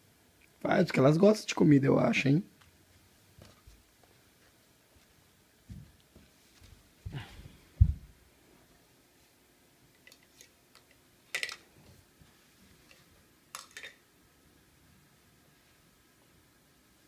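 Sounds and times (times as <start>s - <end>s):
plastic toy dishes clattering: 11.3s - 11.6s, 13.5s - 14.0s.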